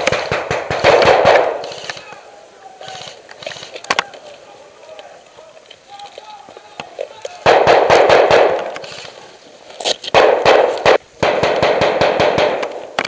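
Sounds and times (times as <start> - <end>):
airsoft gun automatic bursts: 0.0 - 2.1, 7.4 - 9.1, 10.1 - 12.9.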